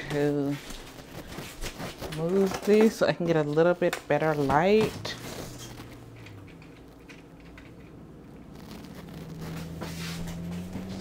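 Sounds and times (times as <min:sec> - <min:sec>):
faint handling sounds: 0:00.0 - 0:11.0
low hum: 0:04.9 - 0:11.0.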